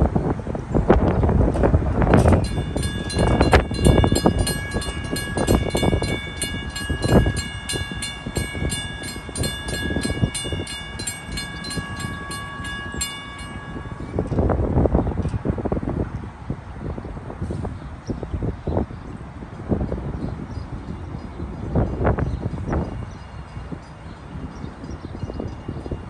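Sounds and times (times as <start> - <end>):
railroad crossing bell ringing: 2.1 - 14.7, 21.8 - 26.0.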